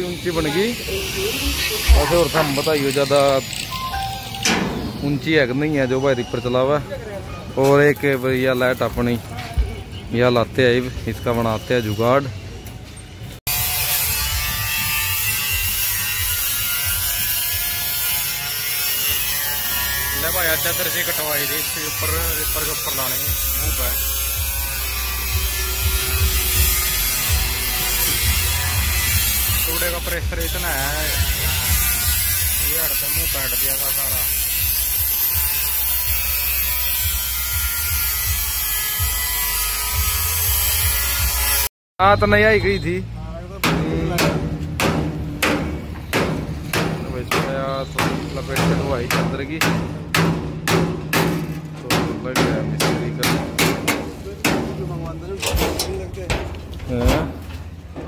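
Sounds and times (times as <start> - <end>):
angle grinder cutting sheet steel: 0.0 - 5.3, 13.5 - 41.7.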